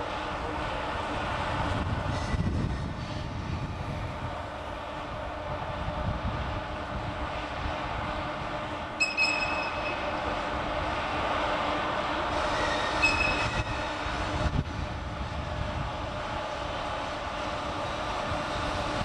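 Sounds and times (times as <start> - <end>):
electric locomotive rolling: 0.0 - 19.0
short high squeals: 9.0 - 10.2, 12.4 - 14.0.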